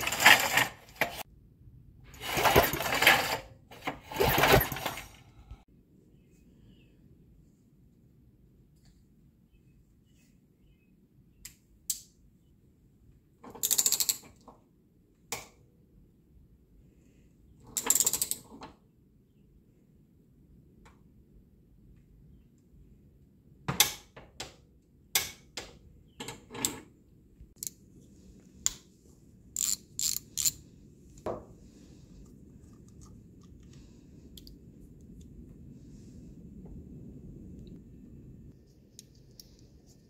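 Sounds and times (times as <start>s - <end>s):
ratchet wrench clicking: 29.6s - 30.6s.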